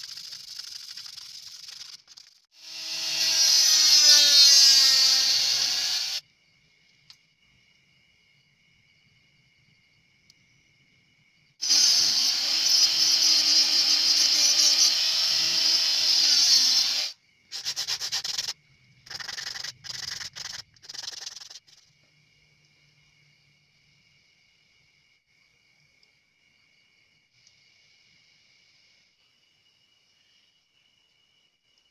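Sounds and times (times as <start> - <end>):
rotary grinder cutting rasp: 2.6 - 6.2, 11.6 - 18.5.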